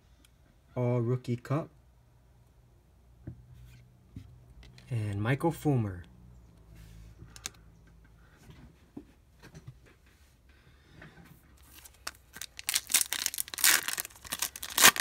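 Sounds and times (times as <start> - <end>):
foil wrapper crinkling: 11.6 - 15.0.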